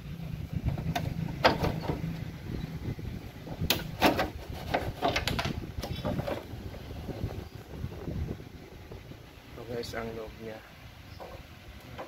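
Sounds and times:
plastic cabinet knocks and scrapes: 3.6 - 6.5.

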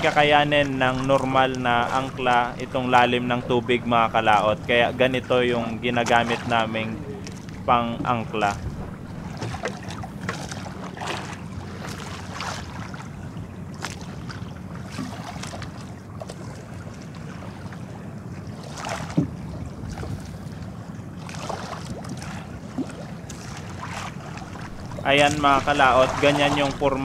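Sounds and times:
wind on microphone: 0.0 - 10.8, 19.1 - 20.9, 24.2 - 27.0
steady low rumble: 0.0 - 14.8, 21.9 - 27.0
water sloshing around boat: 0.0 - 27.0.

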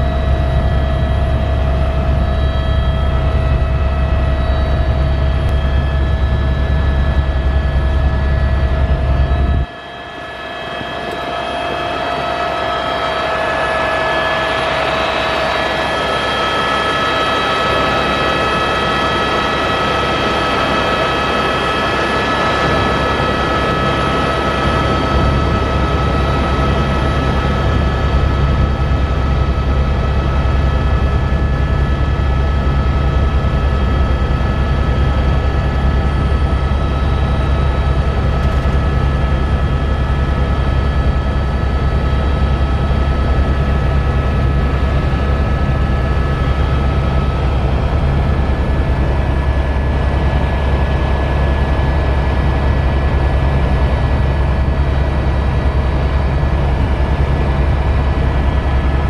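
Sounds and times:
helicopter rotor drone: 0.0 - 59.0
turbine whine: 0.0 - 59.0.

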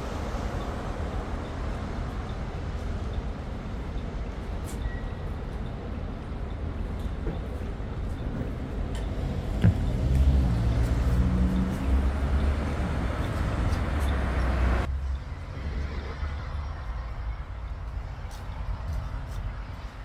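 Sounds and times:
low traffic rumble: 0.0 - 20.0
vehicle engine humming: 7.5 - 17.9.

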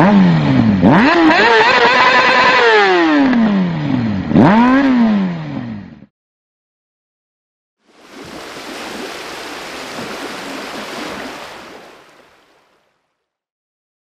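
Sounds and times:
rushing water: 7.8 - 13.3.

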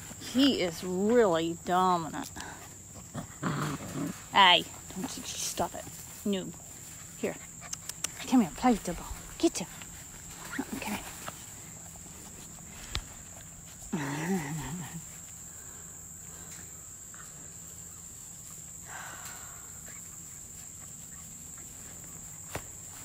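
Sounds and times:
crickets chirring: 0.0 - 23.0
light scuffles and clicks: 4.8 - 13.9.

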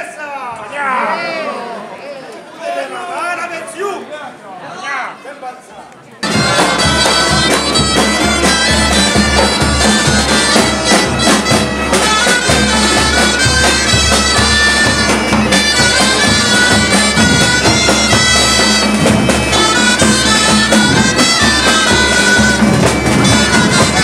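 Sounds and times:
bagpipe tune with drone: 6.2 - 24.0
side drums beating: 6.2 - 24.0.

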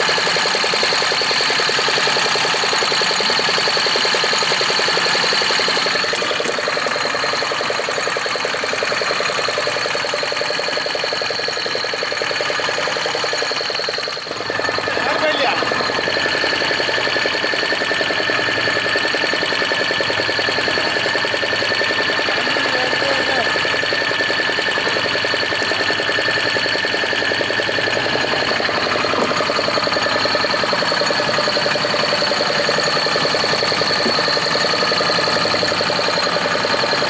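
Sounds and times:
boat engine running: 0.0 - 37.0
high-pitched whine: 0.0 - 37.0.

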